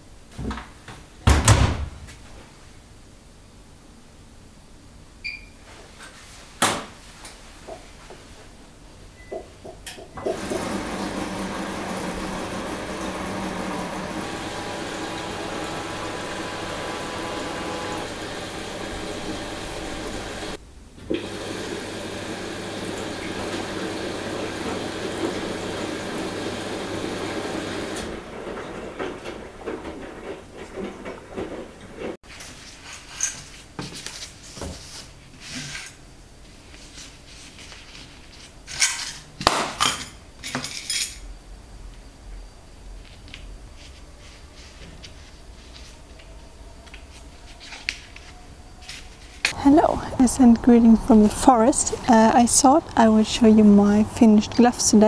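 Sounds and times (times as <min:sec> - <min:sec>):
water rushing into washing machine: 0:10.2 - 0:32.2, 0:49.5 - 0:55.0.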